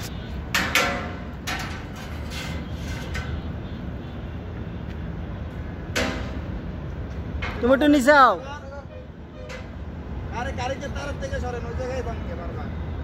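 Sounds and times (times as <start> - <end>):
metal pipes clanking: 0.5 - 3.4, 9.4 - 9.8.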